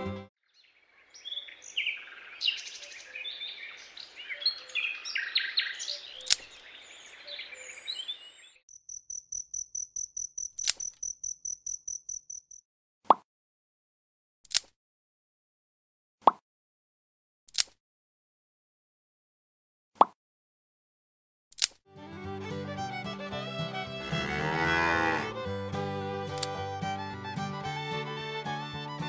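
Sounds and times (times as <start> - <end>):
birds chirping: 0.0 - 12.6
sharp clicks: 6.2 - 6.6, 8.8 - 12.6
cricket chirping: 8.7 - 12.6.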